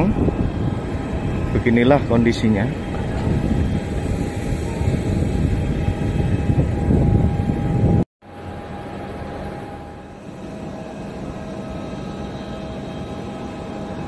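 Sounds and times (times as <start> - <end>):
wind buffeting microphone: 0.0 - 8.1
jet engine whine and rumble: 0.0 - 14.0.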